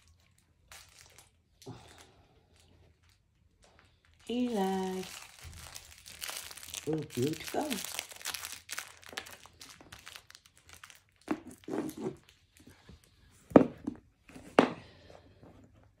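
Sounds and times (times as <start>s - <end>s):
plush toy crinkling and rustling: 0.0s - 13.1s.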